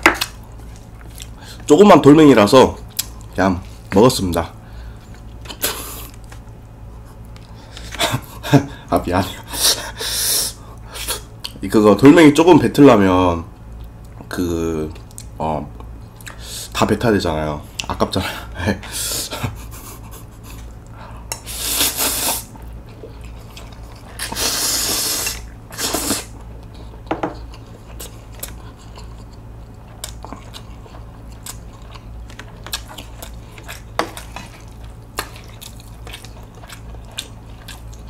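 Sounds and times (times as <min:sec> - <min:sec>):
wet chewing: 0:20.4 - 0:38.0
person slurping noodles: 0:21.4 - 0:22.5, 0:24.2 - 0:26.3.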